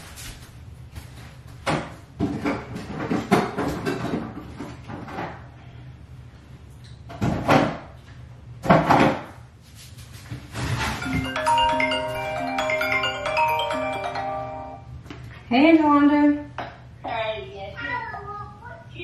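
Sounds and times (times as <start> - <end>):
knocks and clatter: 1.6 - 5.4.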